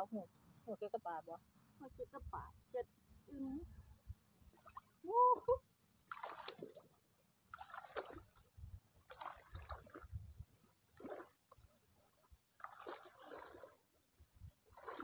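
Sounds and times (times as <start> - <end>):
muddy water sloshing and splashing: 4.4 - 15.0.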